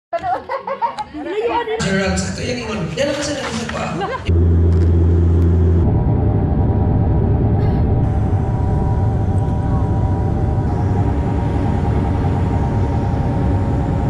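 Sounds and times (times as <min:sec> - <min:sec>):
turboprop cabin drone: 0:04.3 - 0:14.0.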